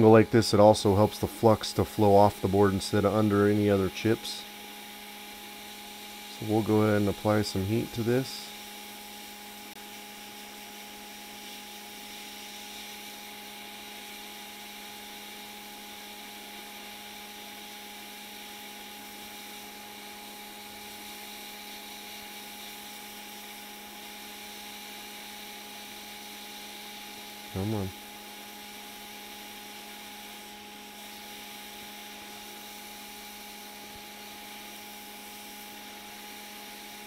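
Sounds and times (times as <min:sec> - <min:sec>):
steady hum: 0:00.0 - 0:37.0
hiss of air: 0:05.2 - 0:15.2, 0:28.7 - 0:37.0.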